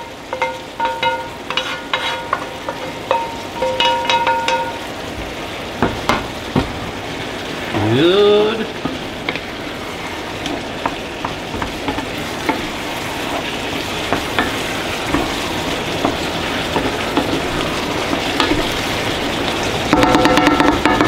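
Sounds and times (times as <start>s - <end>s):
vegetables sizzling in a pot: 0.0s - 21.0s
wooden spoon knocking on pot: 0.3s - 1.7s, 2.3s - 4.8s, 14.0s - 15.4s, 16.0s - 17.4s, 19.9s - 21.0s.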